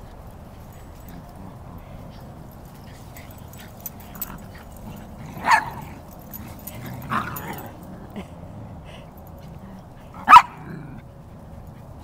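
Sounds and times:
outdoor background noise: 0.0 - 12.0
dog barking: 5.4 - 6.0, 10.2 - 10.8.

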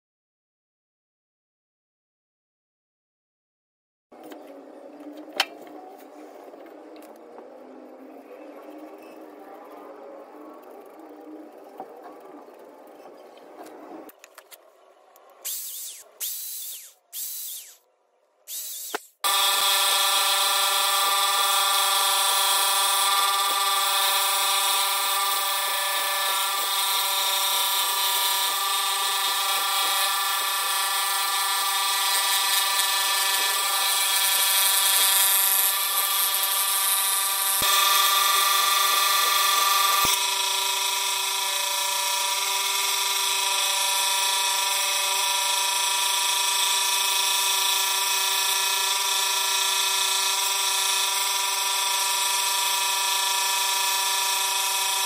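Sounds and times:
scroll saw cutting wood: 10.5 - 17.8, 18.5 - 55.0.

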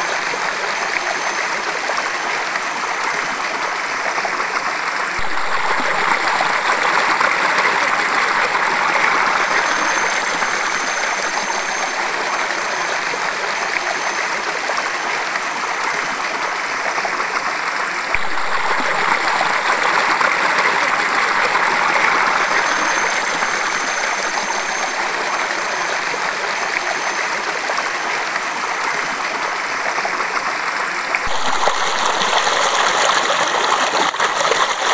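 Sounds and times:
waterfall rushing: 4.7 - 12.9, 30.9 - 34.8.

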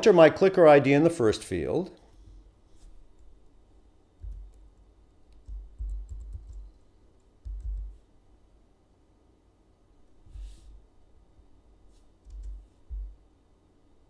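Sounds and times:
typing on a computer keyboard: 4.2 - 4.7, 5.3 - 8.0, 12.2 - 12.6.

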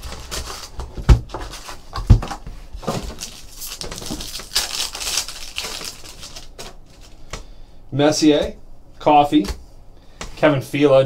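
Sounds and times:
foil pack tearing and crinkling: 2.8 - 7.2.

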